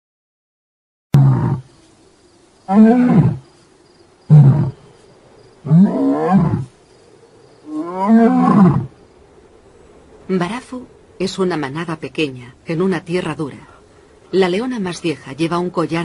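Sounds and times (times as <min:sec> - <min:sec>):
lion roaring: 0:01.2 - 0:01.7, 0:02.7 - 0:03.4, 0:04.3 - 0:04.9, 0:05.6 - 0:06.7, 0:07.6 - 0:09.0.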